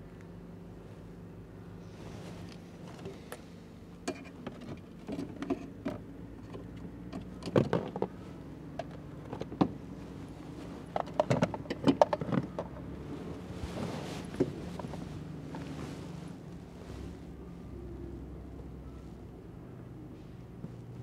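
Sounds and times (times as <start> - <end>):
steady low hum: 0.0 - 7.1, 8.1 - 21.0
clicks rattles and knocks: 10.9 - 12.9.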